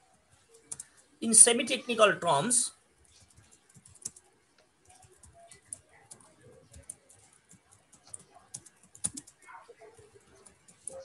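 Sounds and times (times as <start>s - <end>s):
computer keyboard typing: 0.3s - 1.1s, 3.0s - 11.0s.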